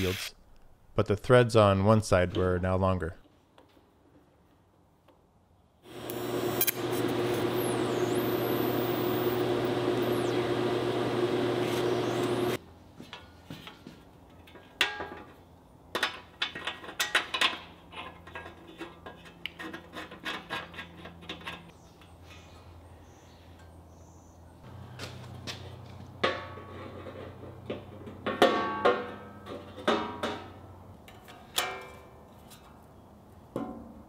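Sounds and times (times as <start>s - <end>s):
welding arc buzzing: 5.8s - 12.6s.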